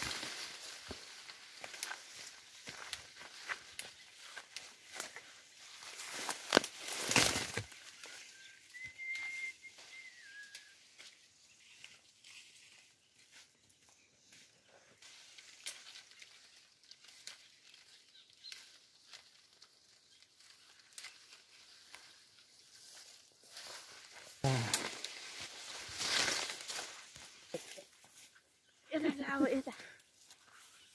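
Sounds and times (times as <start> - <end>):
twigs snapping: 0.0 - 8.2, 15.4 - 22.3, 23.6 - 27.8
leafy branches rustling: 0.0 - 30.9.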